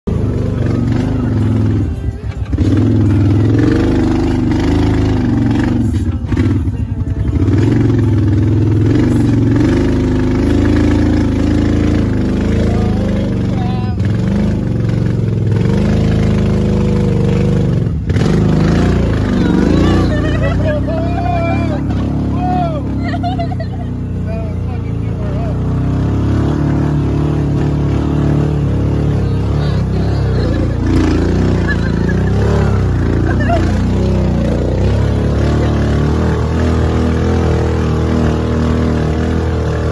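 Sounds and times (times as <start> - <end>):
utility vehicle engine running: 0.0 - 39.9.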